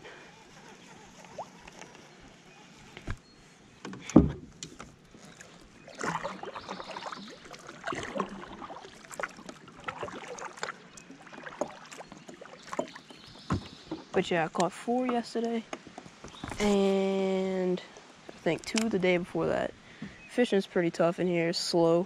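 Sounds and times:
paddle splashing through water: 5.2 - 14.2.

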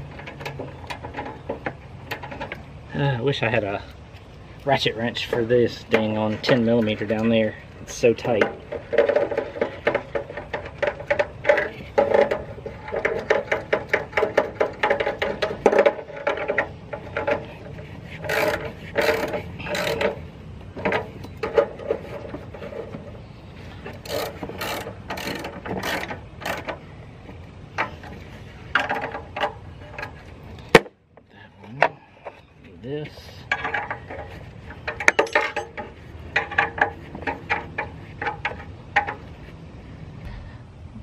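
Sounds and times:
ratchet clicking: 18.2 - 20.2, 23.9 - 26.8
steel clinking on metal: 34.8 - 36.8.

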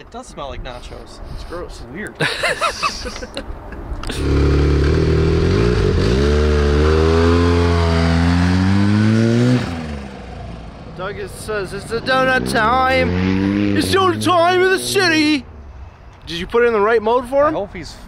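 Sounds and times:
engine accelerating: 4.1 - 10.9, 11.5 - 15.1.

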